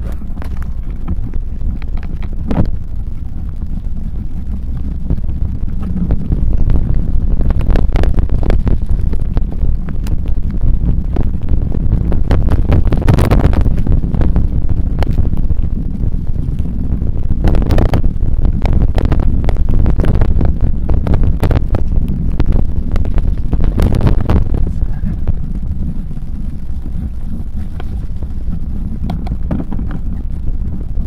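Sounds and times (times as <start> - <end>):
bike rattling over bumpy ground: 0.0 - 31.0
wind buffeting the microphone: 0.0 - 31.0.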